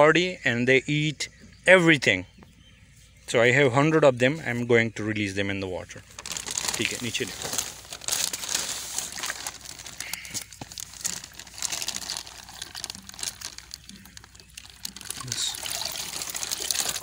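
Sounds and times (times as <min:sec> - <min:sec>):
plastic bag crinkling: 0:06.0 - 0:17.0.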